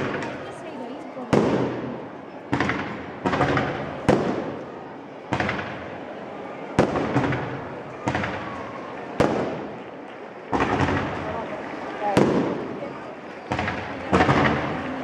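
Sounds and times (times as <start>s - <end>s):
fireworks bursting: 0.0s - 6.0s, 6.7s - 15.0s.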